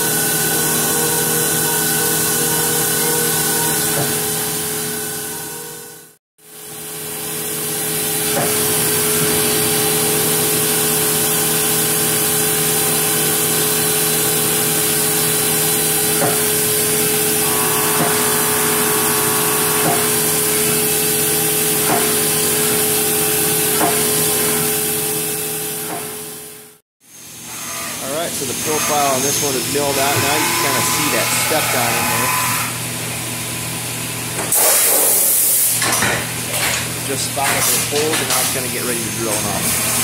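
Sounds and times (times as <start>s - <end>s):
milling machine spindle whine: 0.0s - 6.1s, 8.0s - 25.0s, 27.3s - 33.2s
hiss of mist coolant spraying: 34.5s - 35.8s.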